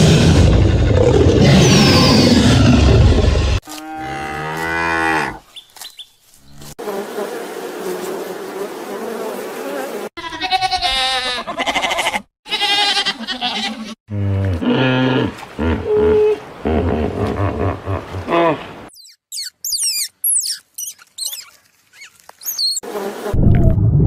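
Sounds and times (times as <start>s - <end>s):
cattle mooing: 3.7s - 5.4s.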